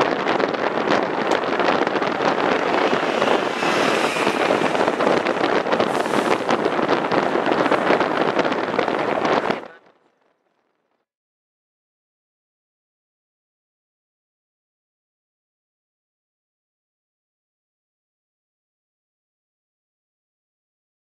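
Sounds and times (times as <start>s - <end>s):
wind buffeting microphone: 0.0s - 9.8s
road noise: 0.0s - 10.4s.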